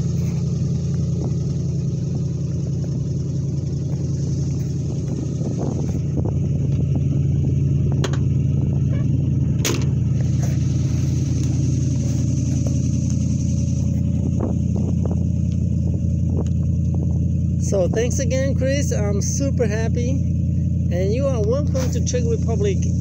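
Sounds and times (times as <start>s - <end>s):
car engine idling: 0.0s - 23.0s
sharp knocks and clicks: 8.0s - 8.3s.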